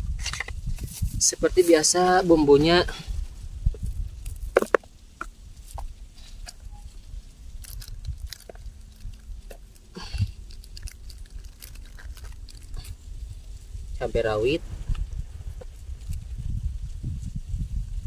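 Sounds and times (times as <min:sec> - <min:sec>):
low rumble: 0:02.4 - 0:18.0
plastic bag crinkling: 0:06.9 - 0:13.4.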